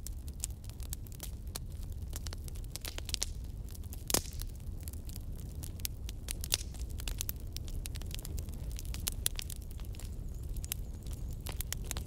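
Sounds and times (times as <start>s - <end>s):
bonfire crackling and popping: 0.0s - 12.0s.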